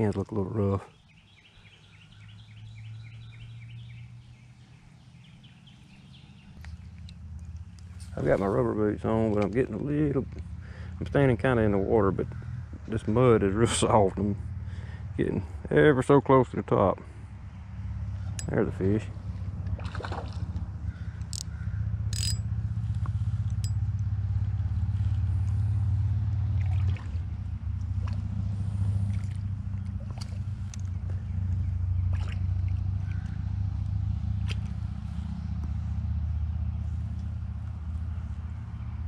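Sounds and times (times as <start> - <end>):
fish splashing at surface: 19.8 - 20.5, 26.5 - 27.4, 32.1 - 33.0
fishing reel clicks: 21.2 - 21.5, 22.1 - 22.4.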